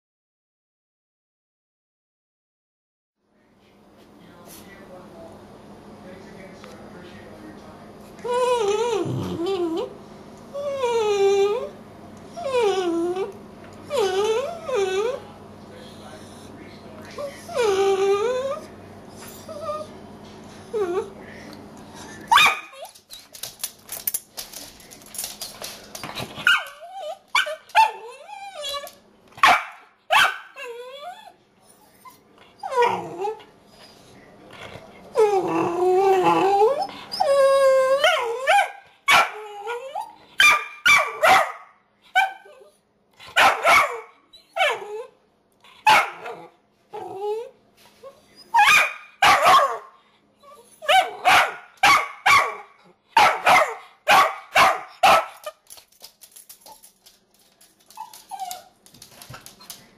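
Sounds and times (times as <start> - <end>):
dog howl-like whines: 8.2 - 9.9, 10.5 - 11.7, 35.2 - 38.6
puppy barking: 22.3 - 22.8, 29.4 - 30.6, 38.4 - 39.4, 40.4 - 42.5, 43.3 - 44.9, 45.8 - 46.5, 48.5 - 49.9, 50.8 - 55.5.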